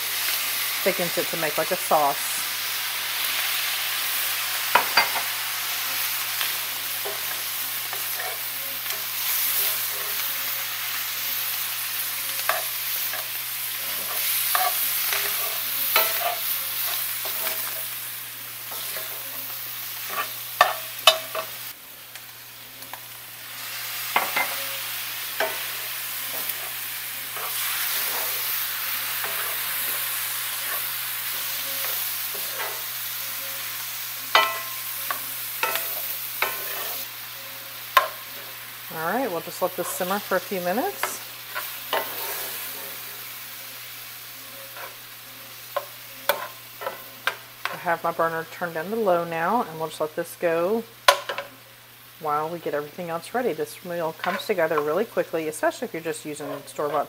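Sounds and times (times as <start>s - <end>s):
meat sizzling in a skillet: 0.0s - 57.0s
metal spoon scraping pan: 6.4s - 10.3s, 12.3s - 18.0s, 18.7s - 21.6s, 24.1s - 33.7s, 34.3s - 37.1s, 39.4s - 43.1s.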